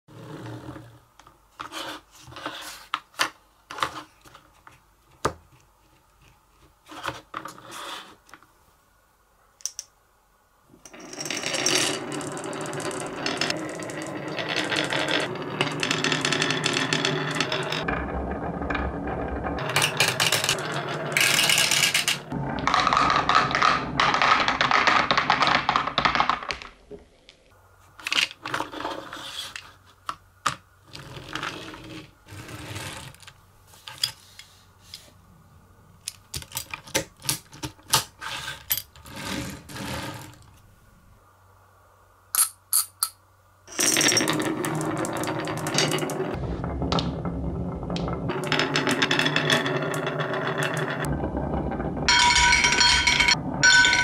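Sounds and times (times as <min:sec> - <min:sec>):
marbles rattling down wooden track: 0:10.9 - 0:26.7, 0:43.7 - 0:54.0.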